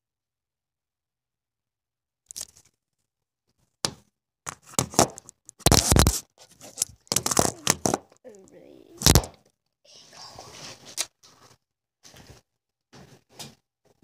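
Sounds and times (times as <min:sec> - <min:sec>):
phone handling noise: 0:04.5 - 0:08.0.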